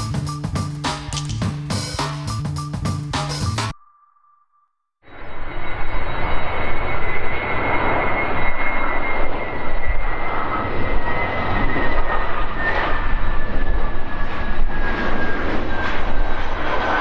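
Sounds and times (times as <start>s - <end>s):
jet engines at takeoff power: 5.1s - 17.0s.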